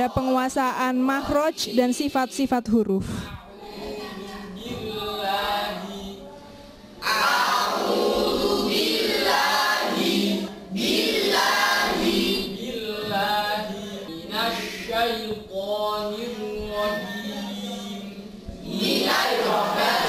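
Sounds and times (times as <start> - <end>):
boys chanting in unison: 3.3 - 20.0.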